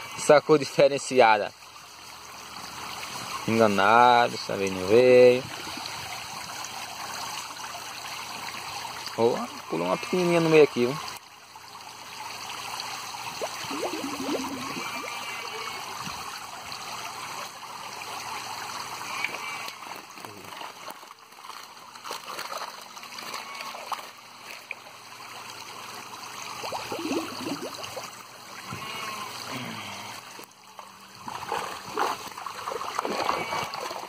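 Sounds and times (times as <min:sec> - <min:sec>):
water jets splashing into tank: 0:00.0 - 0:34.0
net sloshing through water: 0:20.2 - 0:24.8, 0:31.2 - 0:34.0.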